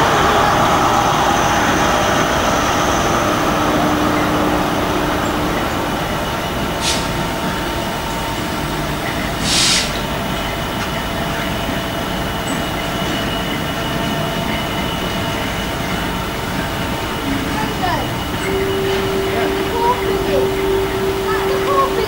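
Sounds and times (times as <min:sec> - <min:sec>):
freight train rumbling past: 0:00.0 - 0:22.0
short hisses: 0:09.4 - 0:10.0.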